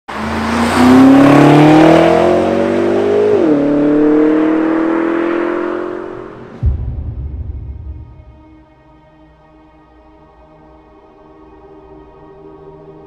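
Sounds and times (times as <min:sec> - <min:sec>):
car engine accelerating past: 0:00.1 - 0:06.8.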